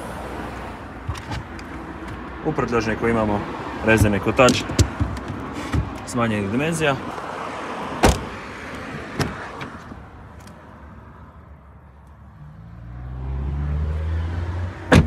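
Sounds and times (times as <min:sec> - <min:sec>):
car door clunk: 0:01.0 - 0:02.3, 0:03.9 - 0:06.1, 0:08.0 - 0:10.0.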